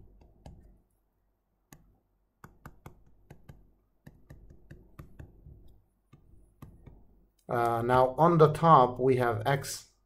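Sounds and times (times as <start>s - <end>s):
stylus tapping on tablet screen: 0.0s - 0.8s, 1.7s - 7.4s.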